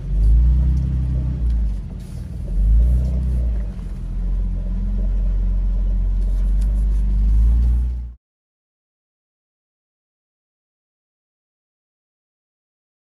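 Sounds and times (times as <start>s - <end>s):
engine rumbling: 0.0s - 8.2s.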